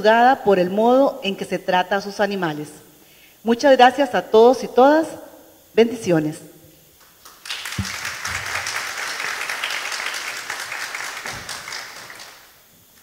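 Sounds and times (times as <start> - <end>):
audience applauding: 7.2 - 12.6.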